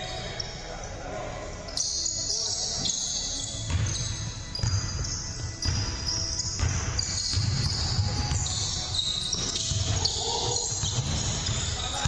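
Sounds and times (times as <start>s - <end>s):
sneaker squeaks: 1.7s - 12.0s
basketball bouncing on hardwood: 6.5s - 8.5s.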